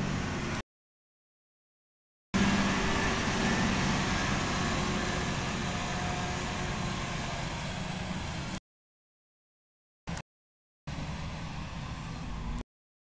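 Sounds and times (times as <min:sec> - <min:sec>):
wheel loader diesel engine: 0:00.0 - 0:00.6, 0:02.4 - 0:08.6, 0:10.9 - 0:12.6.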